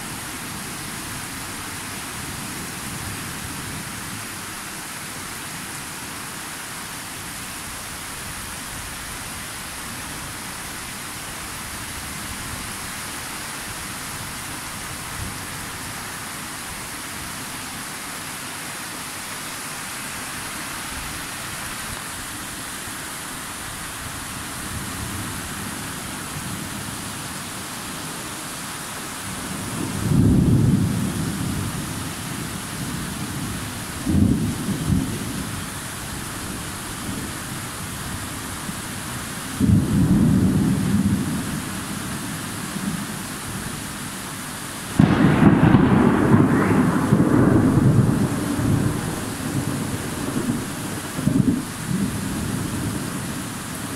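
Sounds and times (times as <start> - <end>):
rain hiss: 0.0 - 53.9
sharp thunder crack: 45.0 - 50.6
thunder rumbling: 45.0 - 53.4.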